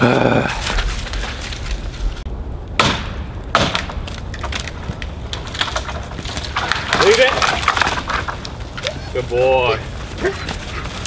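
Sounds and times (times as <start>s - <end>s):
tree limb cracking and splintering: 3.5s - 9.2s.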